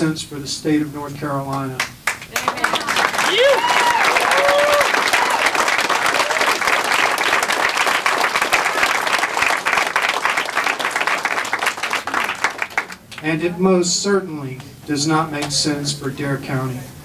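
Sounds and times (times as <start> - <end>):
audience applauding: 1.8 - 13.3
person cheering: 2.3 - 6.7.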